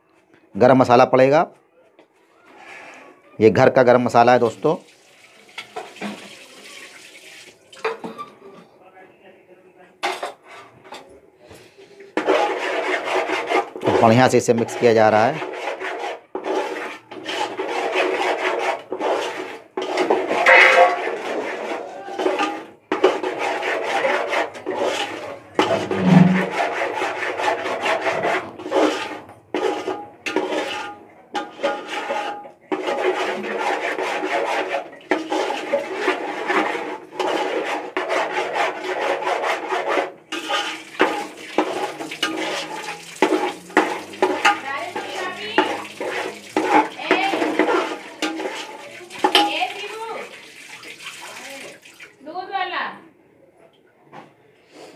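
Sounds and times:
utensil scraping metal pot: 0:10.0 - 0:11.1, 0:11.7 - 0:51.8.

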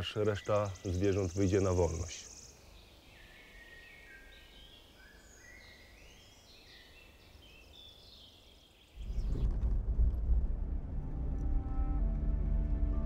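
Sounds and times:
faint birdsong: 0:00.0 - 0:09.7
low background rumble: 0:09.0 - 0:13.0.

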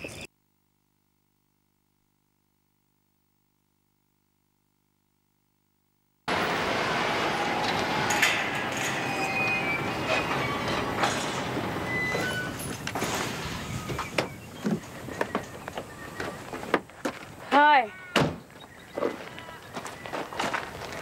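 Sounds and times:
tyres crunching over gravel: 0:08.6 - 0:21.0
brief squeaks: 0:08.8 - 0:15.5.

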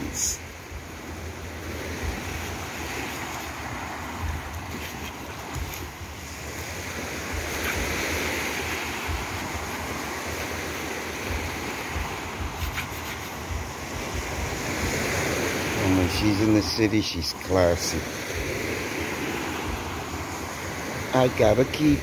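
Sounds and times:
small surf breaking on sand: 0:00.0 - 0:22.0.

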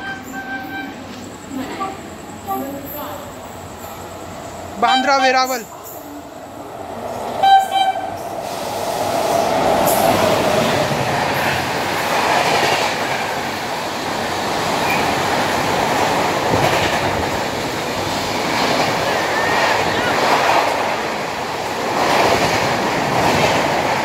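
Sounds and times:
train horn blast: 0:00.0 - 0:01.0, 0:07.4 - 0:08.2
train wheels rumbling on rails: 0:00.0 - 0:24.0.

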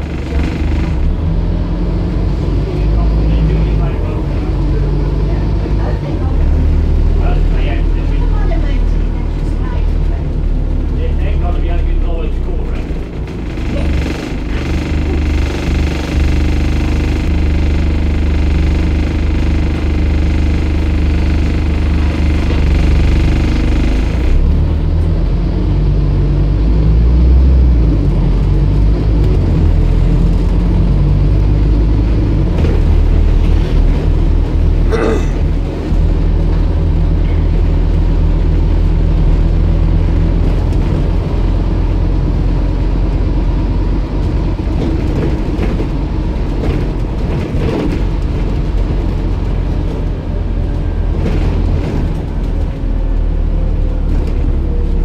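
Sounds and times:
high whine: 0:00.0 - 0:01.5, 0:13.1 - 0:24.8
bus diesel engine droning: 0:00.0 - 0:55.0.

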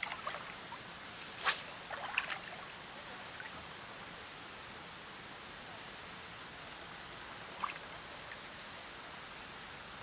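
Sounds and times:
steady outdoor hiss: 0:00.0 - 0:10.0.

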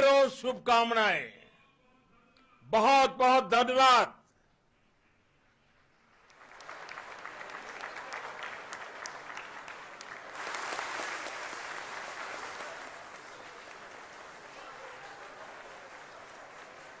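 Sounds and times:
audience applauding: 0:06.0 - 0:17.0.

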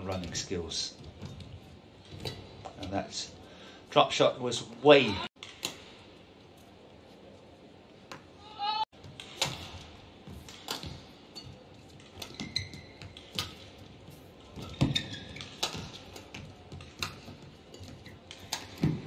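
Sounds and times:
racket hitting shuttlecock: 0:09.0 - 0:13.7, 0:14.5 - 0:19.0
shoes squeaking on court: 0:09.0 - 0:19.0.

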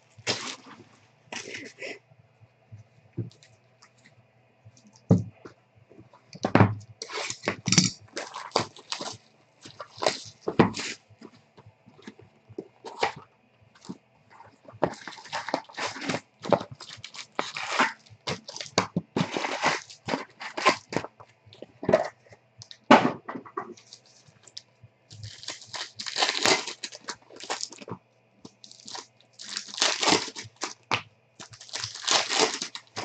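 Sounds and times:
foil wrappers and cards crinkling: 0:00.0 - 0:02.0, 0:06.4 - 0:11.4, 0:12.0 - 0:13.2, 0:13.8 - 0:22.9, 0:23.7 - 0:33.0.

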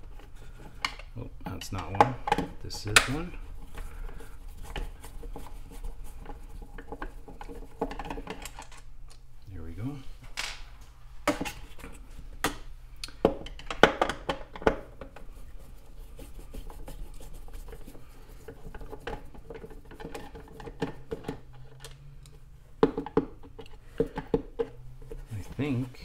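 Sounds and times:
light scraping: 0:24.6 - 0:26.0.

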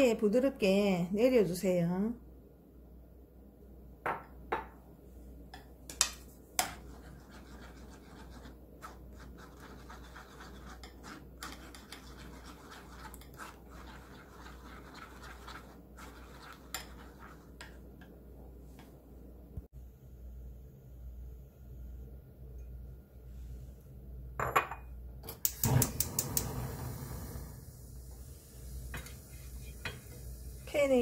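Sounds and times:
spoon scraping metal sieve: 0:06.6 - 0:17.8.

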